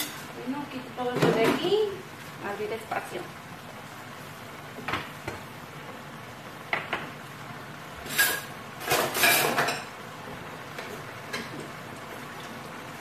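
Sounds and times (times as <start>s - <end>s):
dishes and utensils clinking: 8.0s - 10.0s
dishes clattering: 8.0s - 10.0s.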